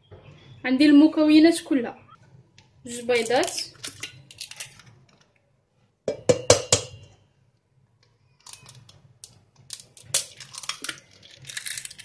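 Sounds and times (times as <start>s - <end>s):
eggshell tapping on metal bowl: 6.1s - 7.1s.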